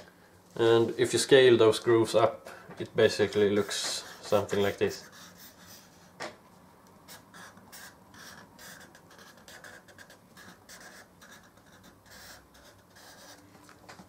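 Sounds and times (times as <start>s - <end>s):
marker scratching on paper: 3.6s - 6.0s, 7.1s - 13.5s.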